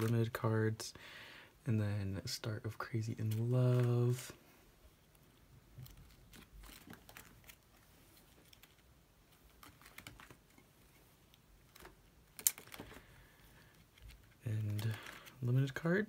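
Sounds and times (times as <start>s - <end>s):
plastic binder pages turning: 3.2s - 4.3s, 5.7s - 15.9s.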